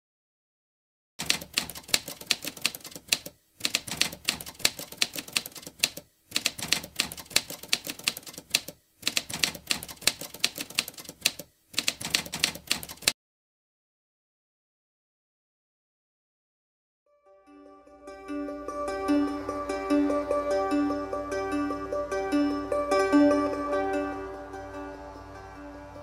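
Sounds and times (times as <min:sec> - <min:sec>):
typewriter keys clacking: 0:01.2 - 0:13.2.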